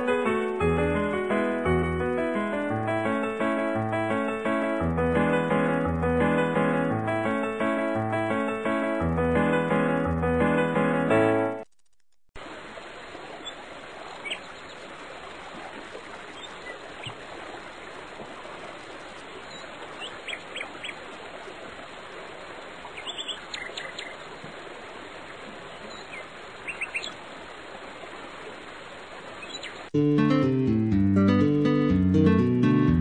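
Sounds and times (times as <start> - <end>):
flowing water rushing: 12.4 - 29.9
birds chirping: 13.4 - 14.9, 16.2 - 17.2, 19.4 - 21.1, 22.8 - 24.3, 25.8 - 27.2, 29.3 - 29.9.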